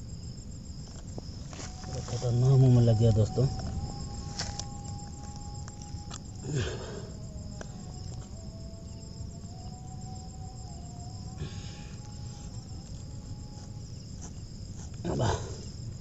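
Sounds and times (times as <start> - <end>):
faint wavering tone: 0.0 - 14.6
insects chirring: 0.0 - 16.0
rustle: 0.3 - 7.0.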